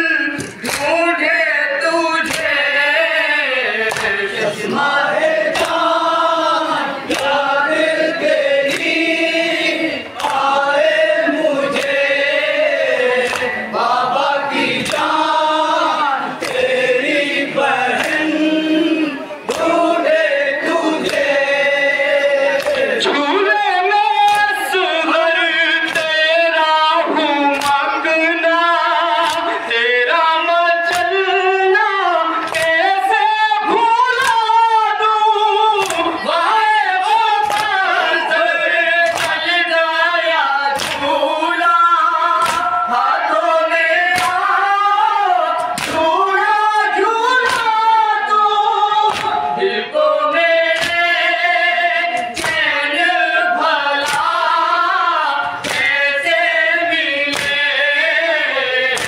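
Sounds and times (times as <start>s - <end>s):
group chanting a lament: 0.0s - 59.0s
chest-beating slaps: 0.4s - 1.0s, 3.8s - 4.2s, 5.5s - 5.8s, 7.1s - 7.4s, 10.2s - 10.6s, 13.2s - 13.7s, 27.5s - 27.8s, 37.4s - 37.8s, 39.0s - 39.4s, 40.8s - 41.1s, 42.4s - 42.8s, 44.1s - 44.5s, 45.6s - 46.1s, 49.1s - 49.6s, 50.6s - 51.2s, 52.1s - 52.8s, 53.9s - 54.4s, 55.6s - 56.0s, 57.3s - 57.7s.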